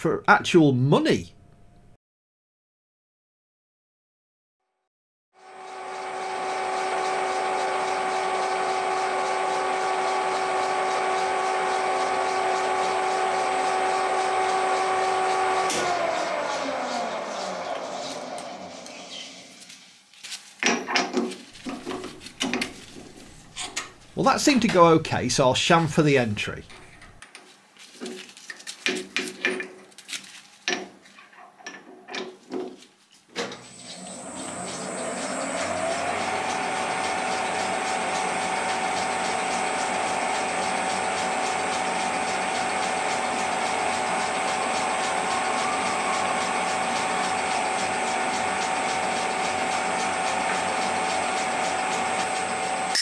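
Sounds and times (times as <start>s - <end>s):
lathe running with gear whine: 5.4s - 19.6s, 21.6s - 25.8s, 33.7s - 53.0s.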